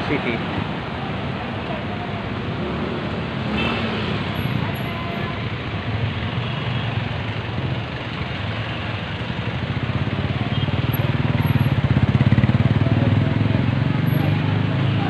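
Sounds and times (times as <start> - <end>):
street traffic: 0.0 - 15.0
motorcycle passing: 9.6 - 15.0.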